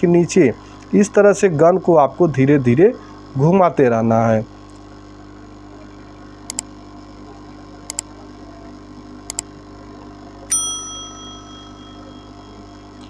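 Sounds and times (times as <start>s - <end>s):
hot-air gun humming: 0.0s - 6.6s, 9.0s - 13.0s
mouse clicks: 6.5s - 6.7s, 7.9s - 8.1s, 9.3s - 9.5s
bell ding: 10.5s - 12.9s.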